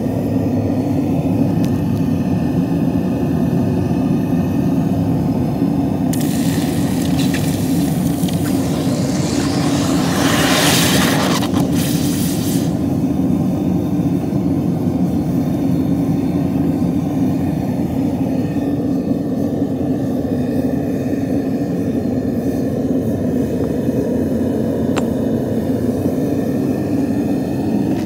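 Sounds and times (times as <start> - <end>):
steady low rumble: 0.0 - 28.0
sizzling steam hiss: 6.1 - 13.1.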